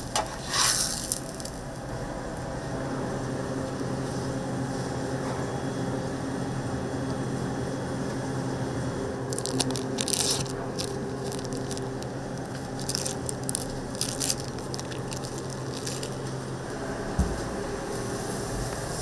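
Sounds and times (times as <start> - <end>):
crisp crackling on griddle: 0.0 - 1.9, 9.3 - 16.6
steady low hum: 0.0 - 19.0.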